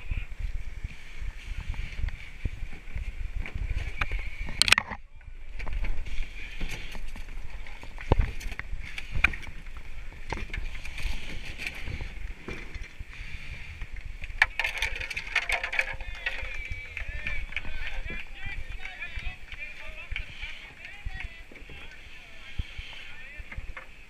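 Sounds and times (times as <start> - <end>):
wind buffeting microphone: 0.0 - 24.0
kayak scraping against rocks: 5.6 - 24.0.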